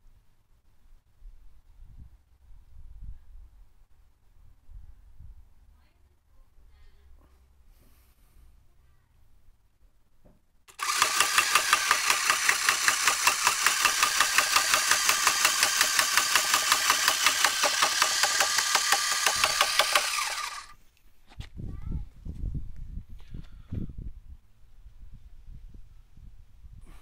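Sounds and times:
electric motor spinning rotor: 0:10.7 - 0:20.8.

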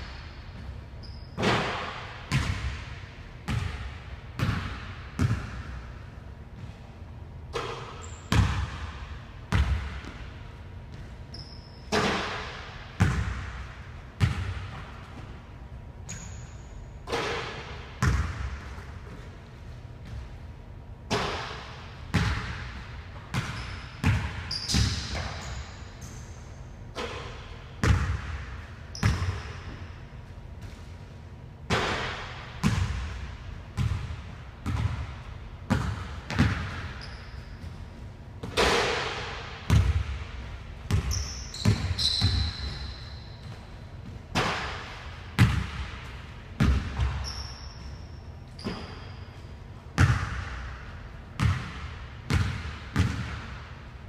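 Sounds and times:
sneaker squeaks: 0:00.0 - 0:01.8, 0:07.6 - 0:08.4, 0:10.9 - 0:12.5, 0:16.1 - 0:17.5, 0:23.3 - 0:27.4, 0:28.9 - 0:30.0, 0:36.4 - 0:38.7, 0:40.9 - 0:44.7, 0:46.9 - 0:49.7.

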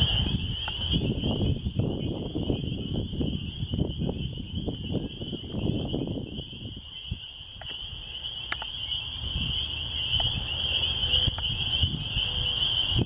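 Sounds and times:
frogs peeping chorus: 0:00.0 - 0:13.0
sharp clicks: 0:08.5 - 0:08.7.

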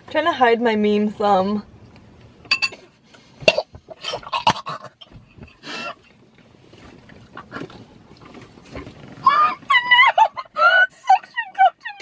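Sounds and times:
women stifled laughter: 0:09.7 - 0:10.8.

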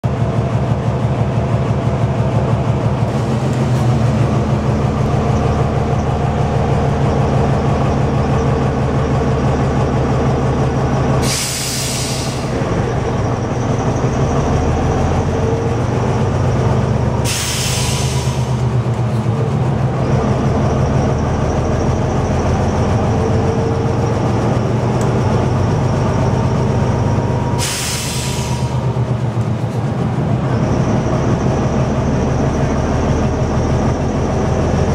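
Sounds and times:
diesel engine droning: 0:00.0 - 0:34.9
air hiss bursts: 0:11.2 - 0:12.5, 0:17.3 - 0:18.5, 0:27.6 - 0:28.8.

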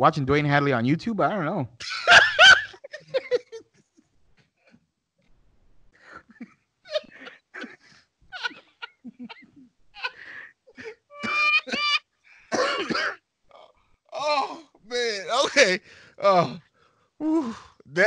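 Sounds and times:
men laughing: 0:01.8 - 0:03.8, 0:06.0 - 0:12.0, 0:15.1 - 0:15.8.

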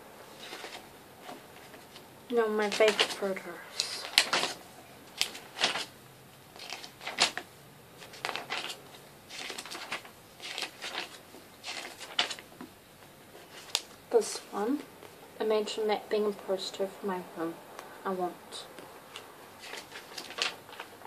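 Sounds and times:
paper pages rustling: 0:00.3 - 0:14.4, 0:18.8 - 0:21.0.

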